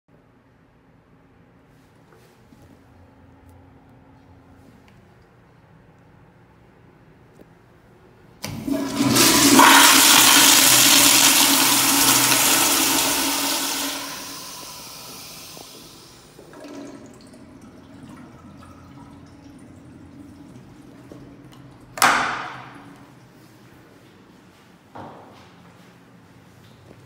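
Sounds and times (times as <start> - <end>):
toilet flushing: 8.4 - 23.7
faint water trickle: 15.0 - 22.0.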